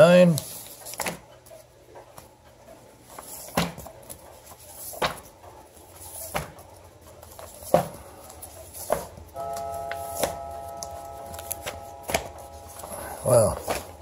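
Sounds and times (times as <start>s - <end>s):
magazines slapping on wooden table: 3.2s - 3.9s, 4.8s - 5.3s, 6.1s - 6.6s, 7.4s - 8.0s, 8.8s - 9.2s, 13.6s - 14.0s.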